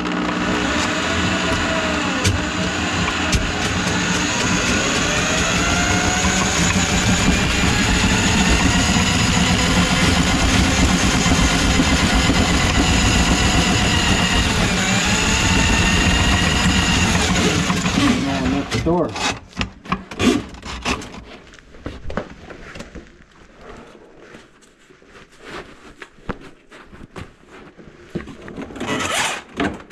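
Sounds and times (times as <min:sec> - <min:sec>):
drain cleaning machine motor: 0:00.0 - 0:18.9.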